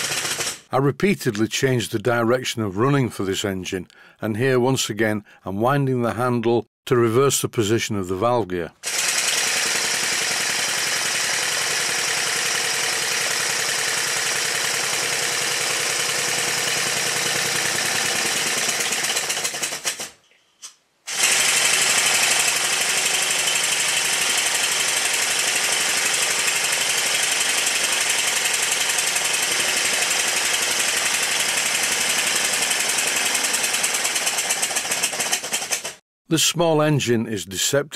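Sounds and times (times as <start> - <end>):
model steam engine running: 0.0 - 0.6, 8.8 - 19.8, 21.1 - 36.0.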